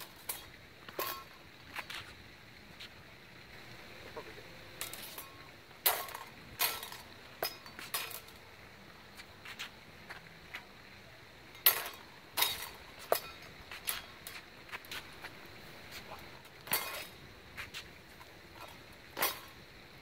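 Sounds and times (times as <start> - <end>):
steel blades clashing: 0.0 - 1.4, 4.8 - 8.4, 11.5 - 14.5, 16.0 - 17.3, 18.6 - 19.6.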